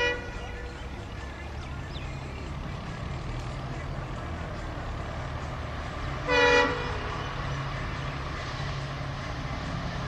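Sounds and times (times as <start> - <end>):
locomotive horn toot: 0.0 - 0.5, 6.2 - 7.3
train rumbling: 0.0 - 10.0.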